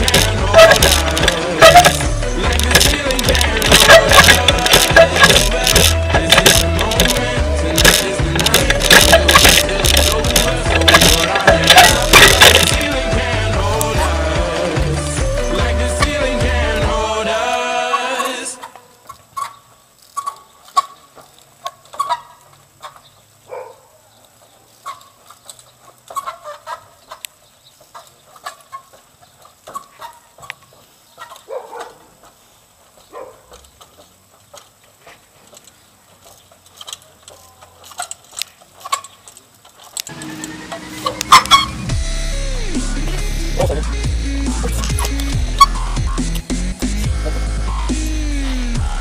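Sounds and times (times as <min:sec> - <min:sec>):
short squeaky chirps: 0:00.0 - 0:02.1, 0:40.1 - 0:41.9
bicycle landing on wooden planks: 0:00.0 - 0:13.0
background music: 0:00.0 - 0:18.6, 0:40.1 - 0:49.0.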